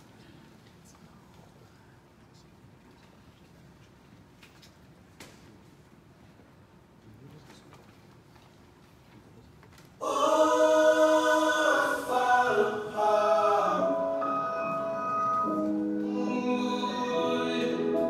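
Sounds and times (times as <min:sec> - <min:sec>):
choir-like singing music: 0:10.0 - 0:18.0.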